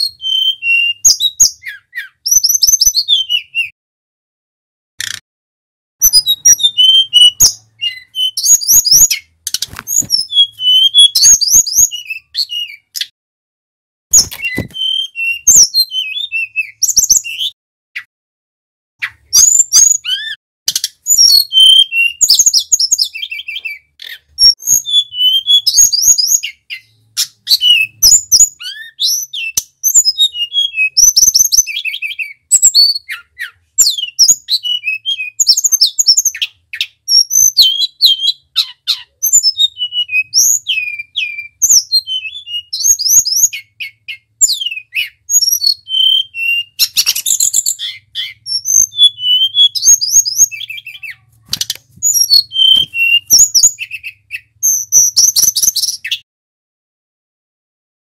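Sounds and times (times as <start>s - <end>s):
bird singing whistled phrases: 0.0s - 3.8s, 6.0s - 9.3s, 9.9s - 13.1s, 14.1s - 18.1s, 19.0s - 56.2s.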